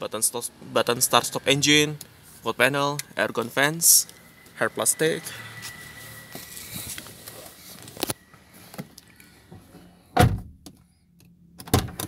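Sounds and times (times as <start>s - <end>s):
faint high tone: 0.7s - 7.8s.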